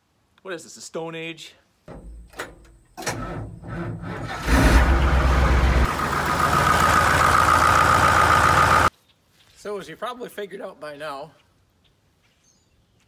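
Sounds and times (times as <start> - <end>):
tractor engine starting and running: 1.9 - 8.9
high engine whine: 3.0 - 8.9.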